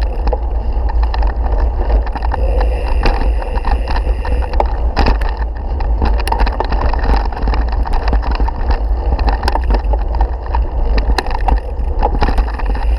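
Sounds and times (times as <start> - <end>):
bike rattling over ground: 0.0 - 12.9
wind rumble on microphone: 0.0 - 12.9.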